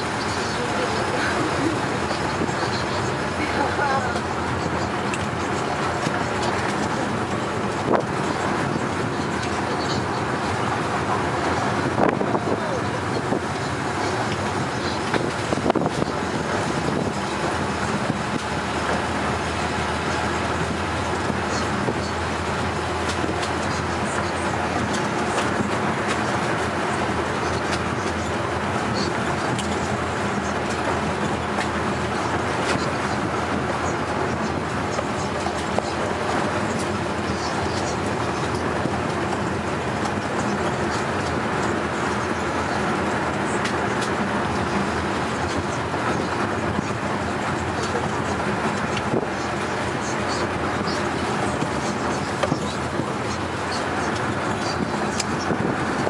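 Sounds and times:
vehicle engine and tyre rumble: 0:00.0 - 0:56.0.

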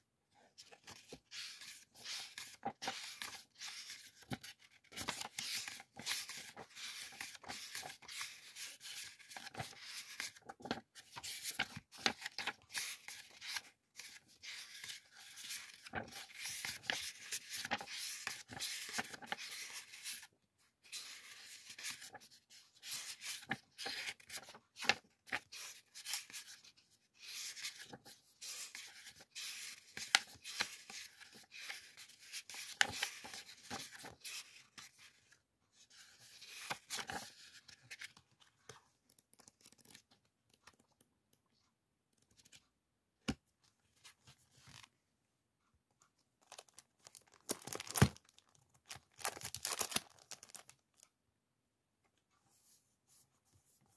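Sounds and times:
paper sheets rustling: 0:00.7 - 0:20.3, 0:20.9 - 0:35.0.

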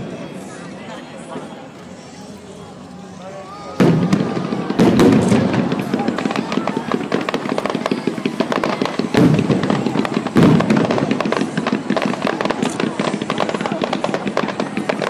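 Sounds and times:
crackling of bursting fireworks: 0:00.0 - 0:15.0
fireworks bangs: 0:01.2 - 0:15.0.

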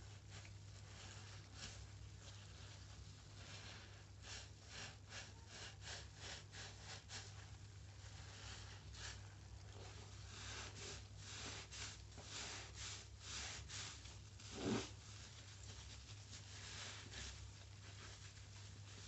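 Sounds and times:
wet sponge squelching: 0:00.0 - 0:19.0.

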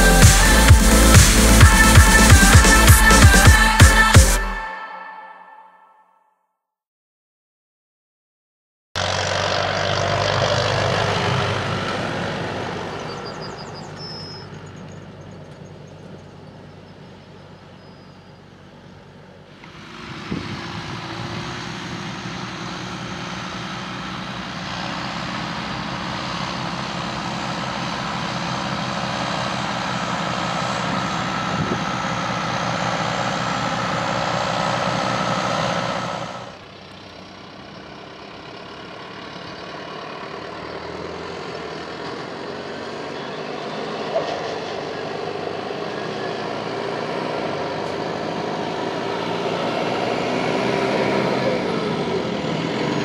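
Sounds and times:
tractor diesel engine under load: 0:00.0 - 0:04.6, 0:09.0 - 0:53.0
baler machinery working: 0:09.0 - 0:40.7.

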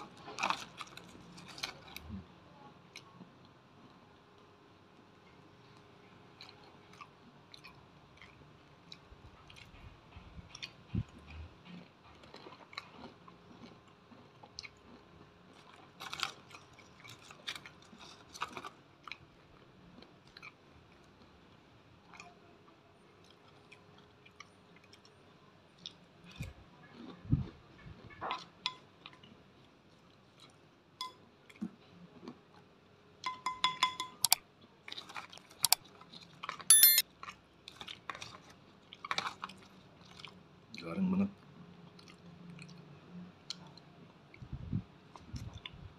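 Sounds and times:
chewing crispy food: 0:00.0 - 0:33.0, 0:34.5 - 0:45.9
short ringing chime: 0:36.7 - 0:37.0.

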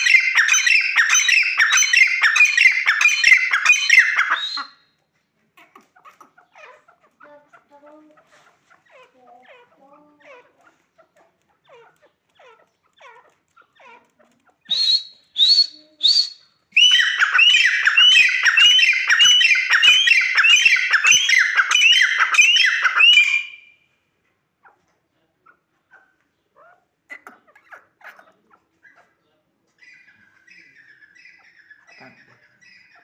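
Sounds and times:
francolin calling: 0:00.0 - 0:04.8, 0:14.7 - 0:23.8.

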